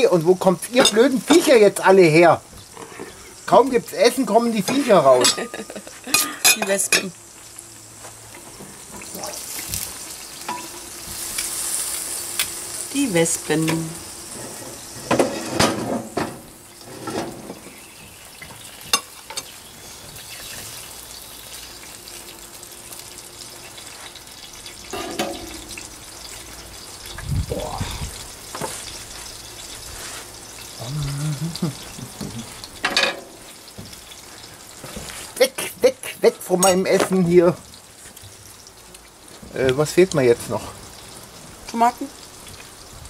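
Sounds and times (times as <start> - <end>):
steady hiss: 0.0 - 43.0
cutlery clinking on plates: 4.7 - 7.1, 24.9 - 25.8, 32.8 - 33.3, 36.6 - 37.2.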